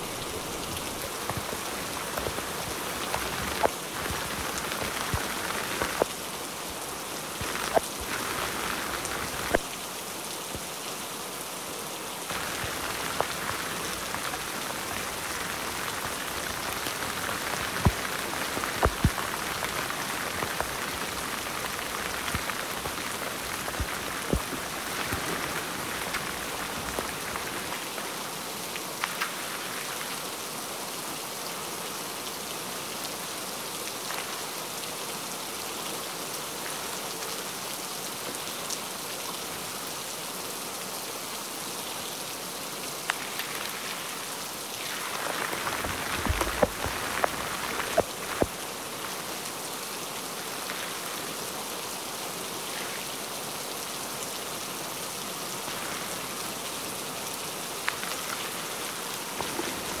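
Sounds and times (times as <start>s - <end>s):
rain pattering on tent fabric: 0.0s - 60.0s.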